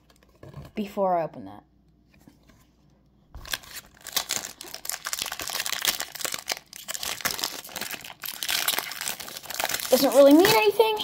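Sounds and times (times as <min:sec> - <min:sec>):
foil pack tearing and crinkling: 0:03.4 - 0:11.0.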